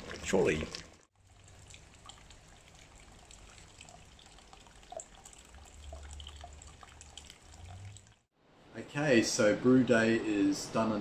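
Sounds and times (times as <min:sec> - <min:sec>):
drips and splashes: 0:00.0 - 0:08.3
liquid trickling into bucket: 0:00.0 - 0:08.3.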